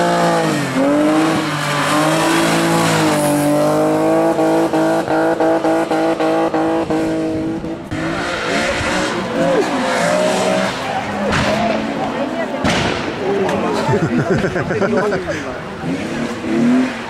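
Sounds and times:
race car engines revving high: 0.0s - 17.0s.

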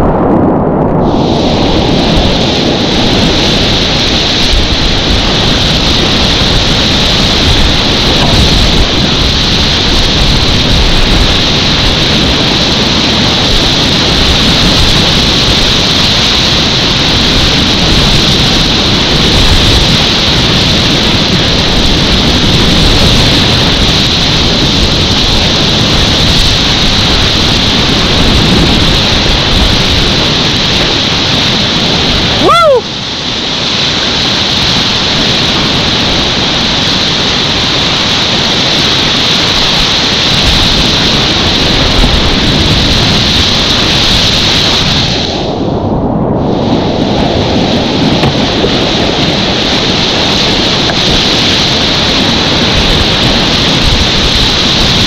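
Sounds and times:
wind buffeting microphone: 0.0s - 55.0s
whitewater rushing: 1.1s - 45.6s, 46.6s - 55.0s
person whooping: 32.4s - 32.9s.

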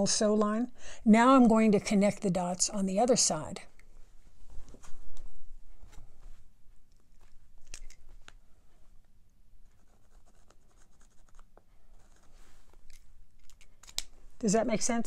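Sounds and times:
pen scratching on fabric: 9.6s - 12.8s.

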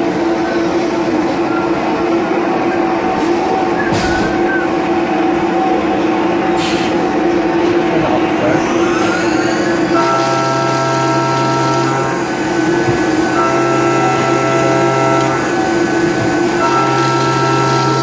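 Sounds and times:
spindle and machine noise: 0.0s - 18.0s
machine cutting tone: 8.9s - 18.0s.

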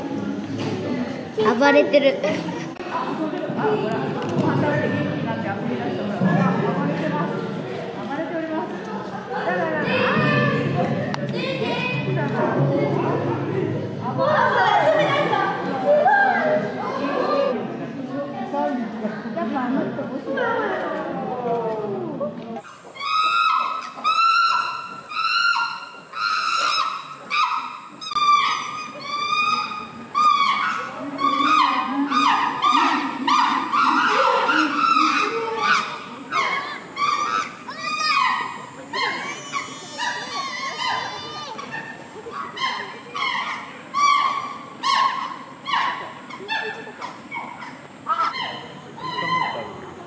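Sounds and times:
chimpanzee screaming: 22.6s - 49.9s.

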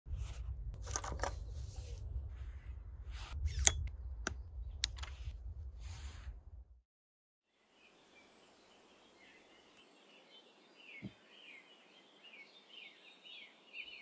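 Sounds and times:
steady low rumble: 0.1s - 6.8s
sharp clicks: 3.5s - 5.2s.

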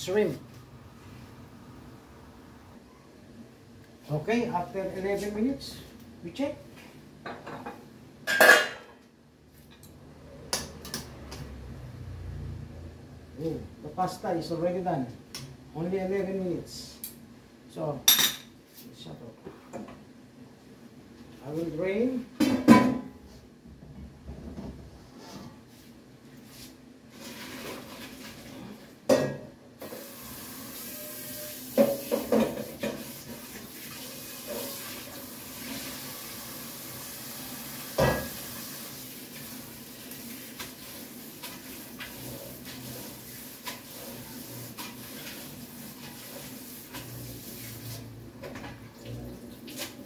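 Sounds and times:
water pouring into a sink: 33.0s - 47.9s.

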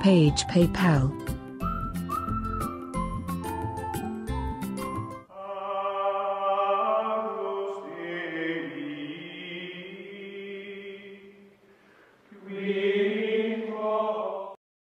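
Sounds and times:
choir-like chanting music: 5.3s - 11.5s, 12.3s - 14.6s.

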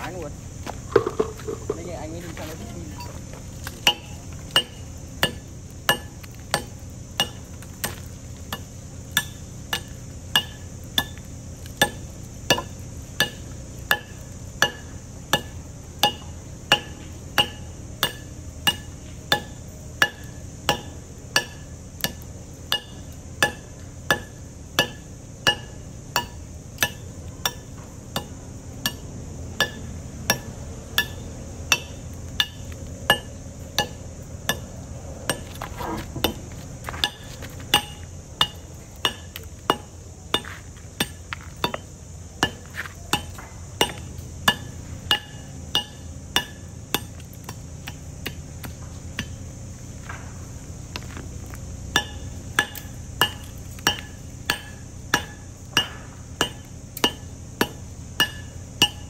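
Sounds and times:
hammer striking chisel on concrete: 0.9s - 1.9s, 51.9s - 59.0s.

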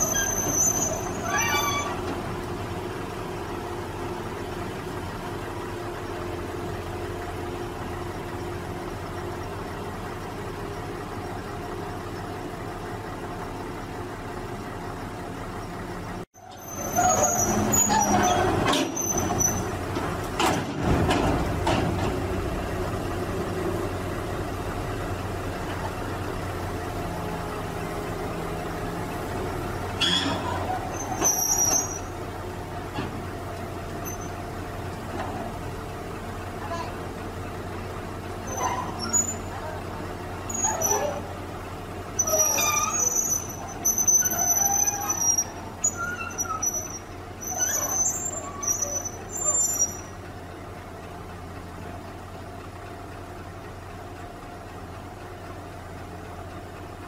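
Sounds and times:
high metallic squeals of tracks: 0.0s - 2.2s, 16.4s - 19.8s, 30.0s - 32.3s, 34.0s - 34.4s, 38.4s - 39.8s, 40.5s - 41.4s, 42.2s - 50.2s
diesel engine running: 0.0s - 57.0s
metal knocks and clanks: 18.1s - 22.4s.

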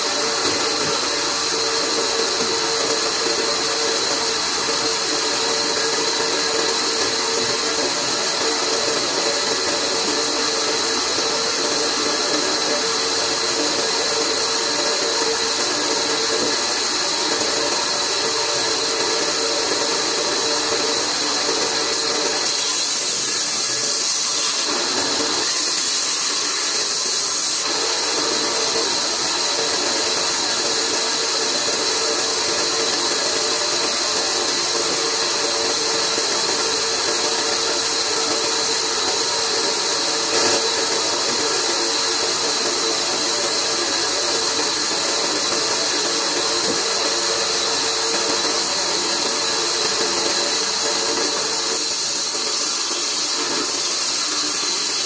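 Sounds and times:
bandsaw cutting wooden beam: 0.0s - 55.0s.

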